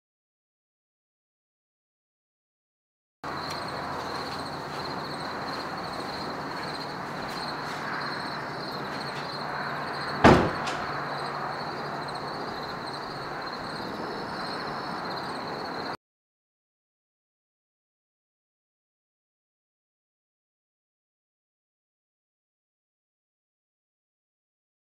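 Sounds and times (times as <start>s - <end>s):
sharp knock: 10.2s - 10.9s.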